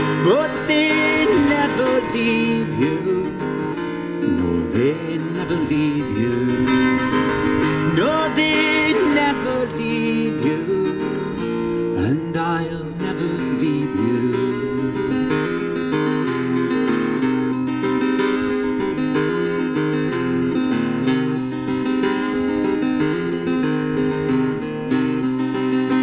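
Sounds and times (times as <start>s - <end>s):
acoustic guitar strummed: 0.0s - 26.0s
people singing: 0.2s - 3.4s.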